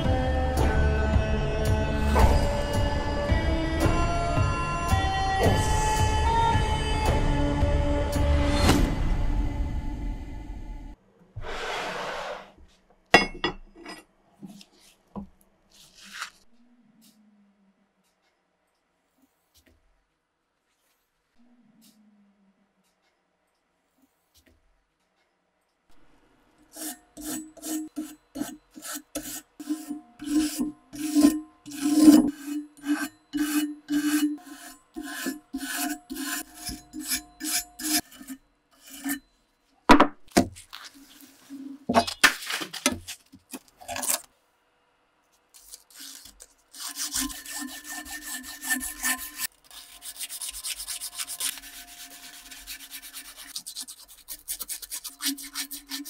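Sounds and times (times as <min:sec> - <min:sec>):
sandpaper crinkling: 0:15.7 - 0:16.5, 0:40.6 - 0:44.3, 0:45.3 - 0:56.0
brush scrubbing metal: 0:26.7 - 0:39.2, 0:45.6 - 0:56.0
sanding metal: 0:26.7 - 0:39.2, 0:46.7 - 0:56.0.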